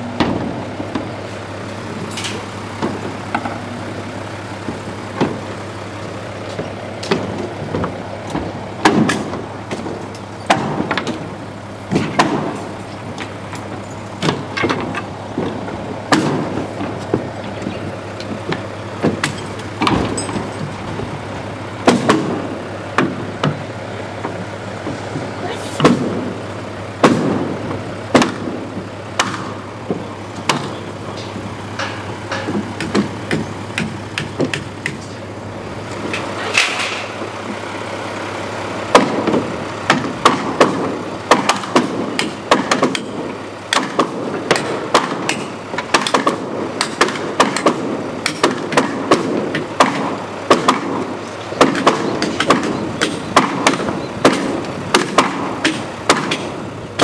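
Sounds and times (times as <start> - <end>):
sledgehammer knocking on wood: 6.5 - 11.3, 21.8 - 22.4, 24.2 - 26.3, 27.0 - 28.6, 31.8 - 35.0, 38.9 - 51.0, 51.6 - 56.6.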